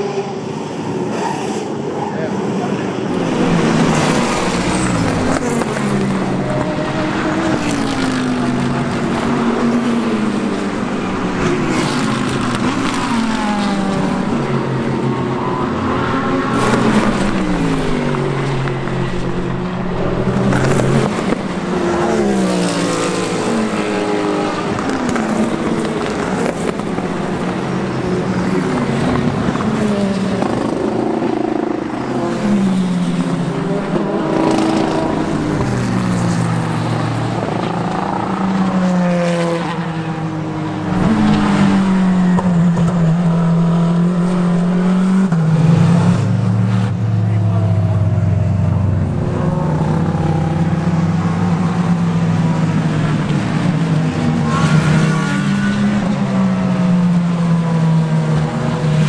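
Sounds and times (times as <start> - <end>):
race cars passing at speed: 0.0 - 59.0
car engine high note: 45.6 - 52.8.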